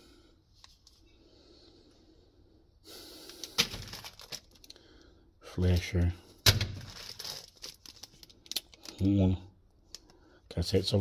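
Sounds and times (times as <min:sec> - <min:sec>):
wires clicking and rustling: 0:03.2 - 0:05.0, 0:05.7 - 0:10.2.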